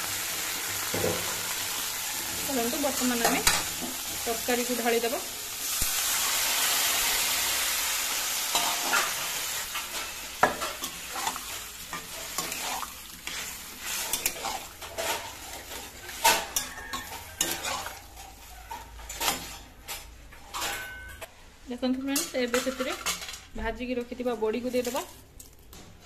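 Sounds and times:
vegetables sizzling: 0.0s - 20.6s, 24.1s - 25.5s
metal spatula scraping a pan: 8.4s - 21.3s.

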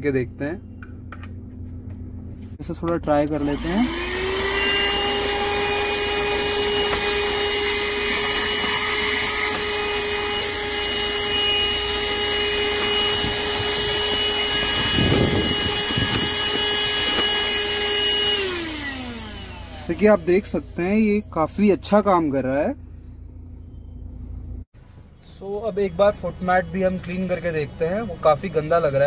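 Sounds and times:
handheld vacuum cleaner whining: 3.3s - 21.2s.

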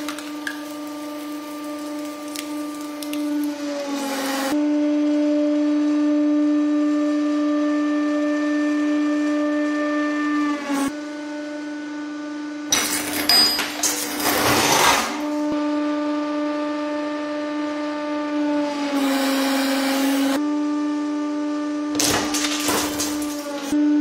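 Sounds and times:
objects being crushed: 12.7s - 15.4s, 22.0s - 23.8s.

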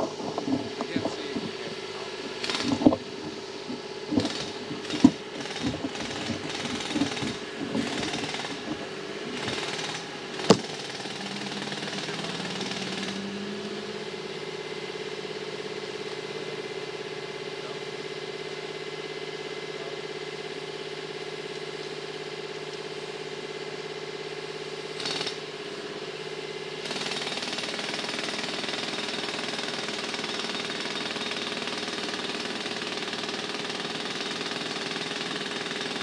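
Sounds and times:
phone handling knocks and rustles: 0.0s - 9.5s, 10.5s - 10.7s
jackhammer chipping concrete: 0.0s - 36.0s.

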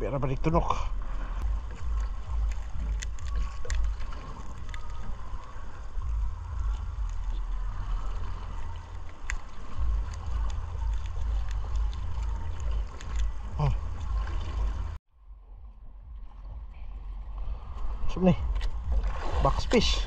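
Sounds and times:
steady low rumble: 0.0s - 20.0s
net clicks and rustles: 1.4s - 14.5s.

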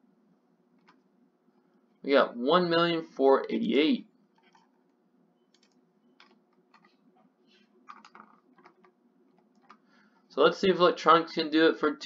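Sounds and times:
keyboard typing: 4.3s - 7.1s, 7.8s - 9.8s.

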